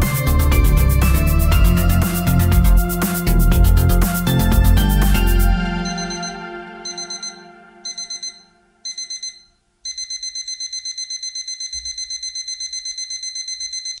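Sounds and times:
song music: 0.0 - 8.9
digital alarm clock beeping: 5.8 - 14.0.

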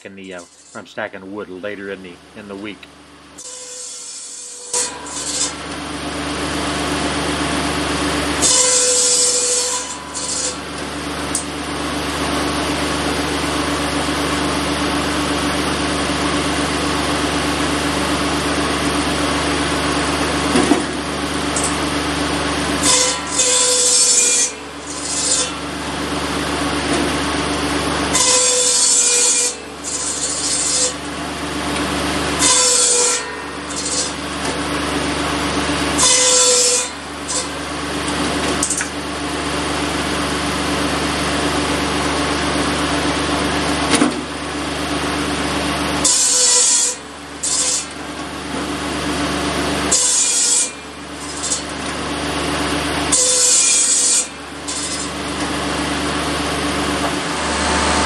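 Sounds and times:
circular saw blade running: 0.0 - 43.8, 44.4 - 58.0
saw cutting with rasping hiss: 0.2 - 1.5, 3.4 - 5.6, 8.4 - 10.6, 22.8 - 25.9, 28.1 - 31.0, 32.4 - 34.3, 36.0 - 37.6, 53.1 - 55.2.

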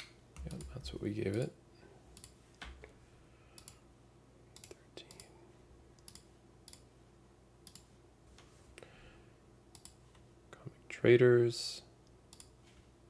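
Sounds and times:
faint mouse clicks: 3.5 - 3.8, 4.5 - 5.3, 6.0 - 6.9, 9.7 - 10.3, 12.0 - 12.6.

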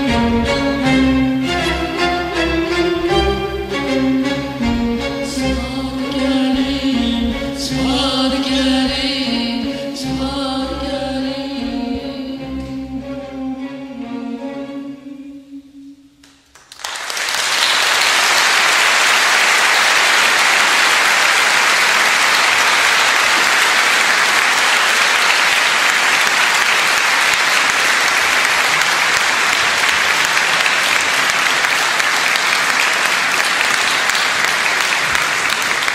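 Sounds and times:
audience applauding: 16.2 - 35.9.

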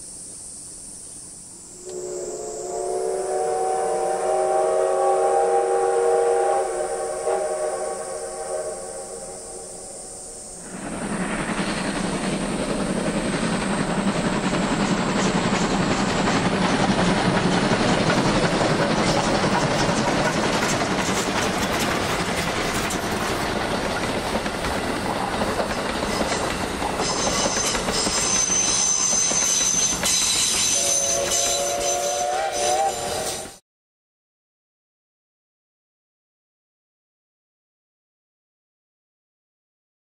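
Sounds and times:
steam locomotive working hard: 1.8 - 33.6.

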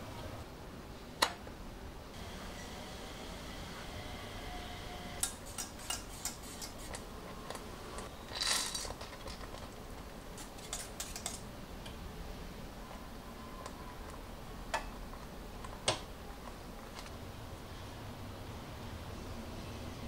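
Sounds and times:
faint steady hum: 0.0 - 20.0
utensil scraping a saucepan: 5.2 - 9.6, 10.3 - 11.4.

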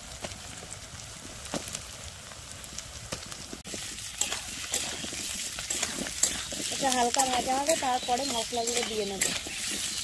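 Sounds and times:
potatoes sizzling in oil: 0.0 - 10.0
spatula scraping a pan: 3.7 - 10.0.

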